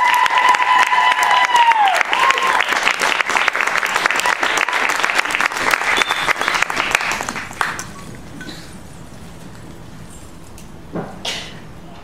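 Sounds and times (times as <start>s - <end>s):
audience applauding: 0.0s - 8.0s
room hum: 0.0s - 12.0s.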